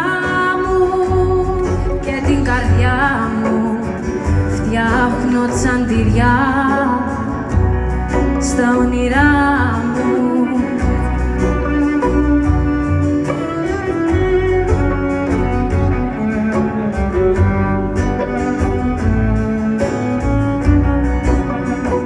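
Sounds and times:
acoustic guitar: 0:00.0 - 0:22.0
bowed strings melody: 0:00.0 - 0:22.0
low bass line: 0:10.7 - 0:22.0.

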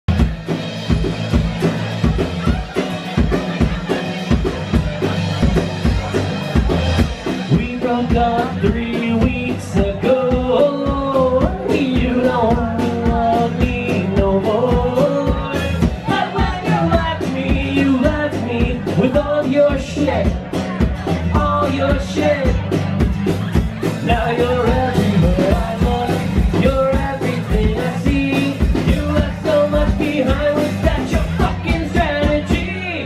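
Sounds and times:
acoustic guitar: 0:00.0 - 0:33.0
drum beat: 0:00.1 - 0:33.0
man singing: 0:07.4 - 0:33.0.

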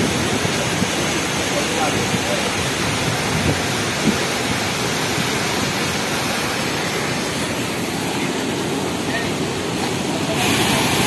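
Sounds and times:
waterfall rushing onto rocks: 0:00.0 - 0:11.0.

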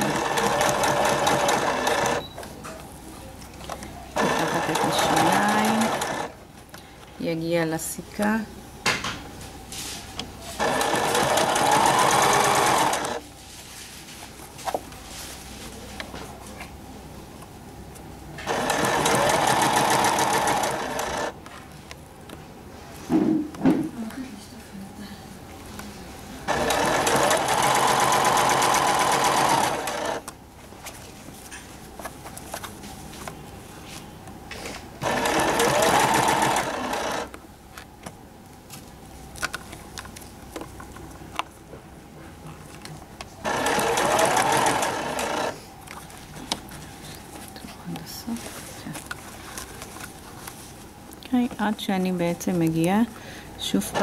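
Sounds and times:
sewing machine stitching: 0:00.0 - 0:02.3, 0:04.2 - 0:06.4, 0:10.6 - 0:13.2, 0:18.4 - 0:21.4, 0:26.5 - 0:30.3, 0:35.0 - 0:37.3, 0:43.4 - 0:45.6.

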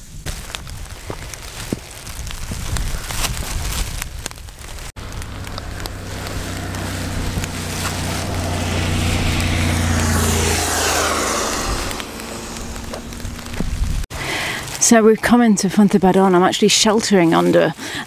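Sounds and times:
tyres hissing on wet road: 0:04.9 - 0:14.8
motorcycle engine passing by: 0:05.0 - 0:14.1.

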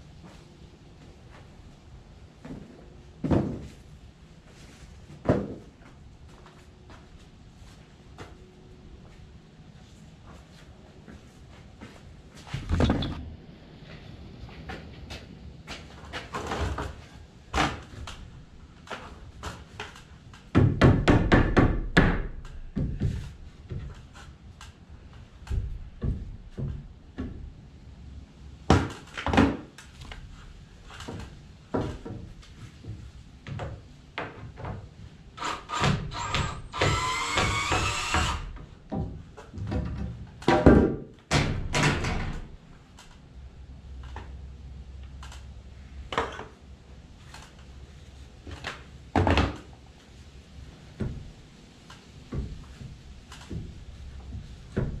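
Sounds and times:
knocks on wooden framing: 0:20.5 - 0:23.9
cordless drill whining: 0:35.4 - 0:38.5.

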